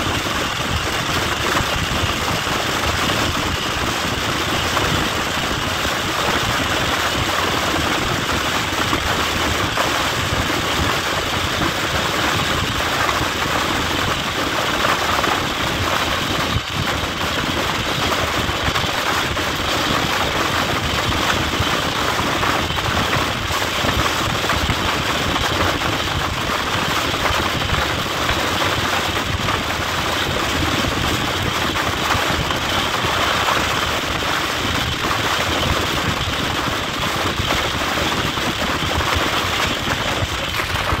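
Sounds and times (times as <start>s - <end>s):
train wheels rolling on rails: 0.0s - 41.0s
wind buffeting microphone: 0.0s - 41.0s.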